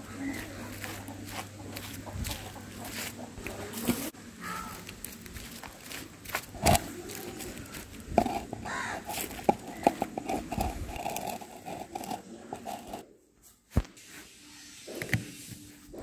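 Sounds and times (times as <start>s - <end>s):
hen clucking: 0.0s - 4.9s, 6.5s - 13.0s.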